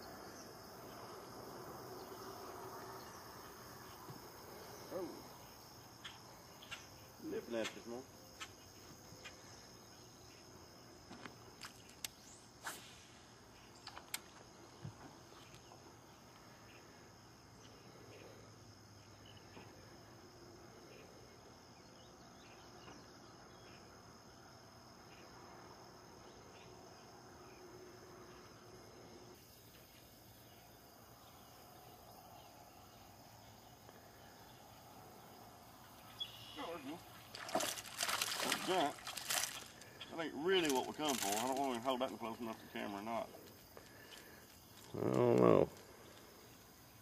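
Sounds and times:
insect chirring: 0:00.0 - 0:47.0.

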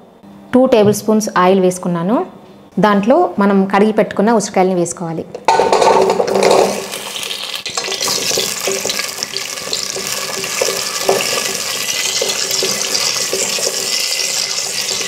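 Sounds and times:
berries sizzling in hot oil: 0:05.5 - 0:15.0.

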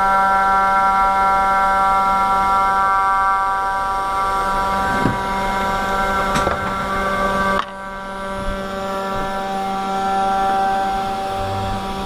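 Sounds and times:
cnc router whining: 0:00.0 - 0:12.0
wood machining noise: 0:03.8 - 0:12.0.

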